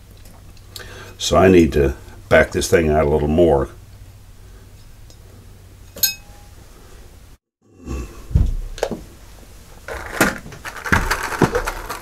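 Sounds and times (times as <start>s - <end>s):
small metallic clink: 5.9s - 6.4s.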